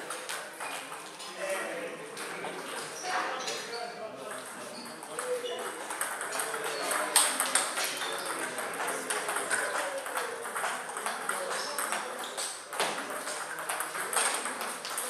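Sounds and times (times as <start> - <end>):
table tennis ball clicking: 5.1 - 15.0.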